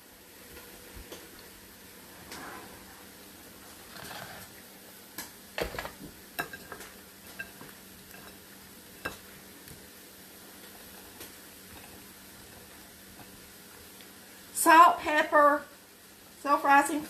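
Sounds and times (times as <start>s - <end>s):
soft rustling of squash in flour: 0.2s - 5.0s.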